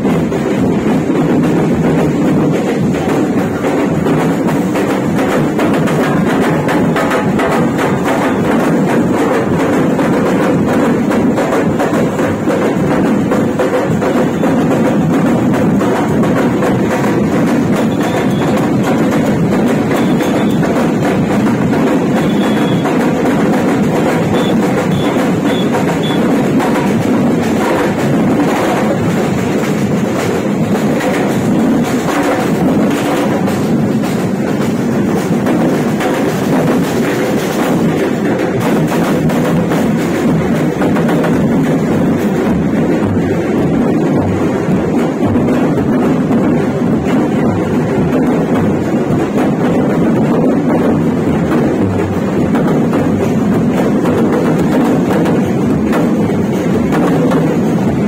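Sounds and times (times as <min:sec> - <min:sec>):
snare drums marching rhythm: 0:00.0 - 0:58.0.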